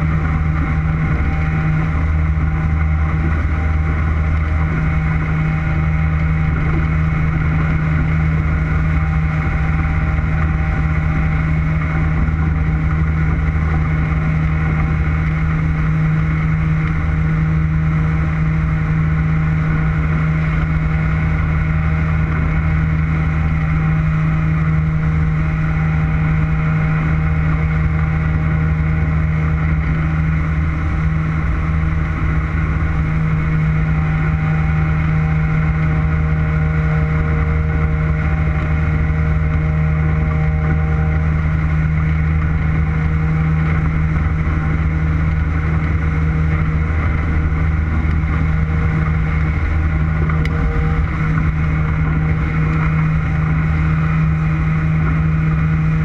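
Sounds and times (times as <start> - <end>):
motorboat engine running: 0.0 - 56.0.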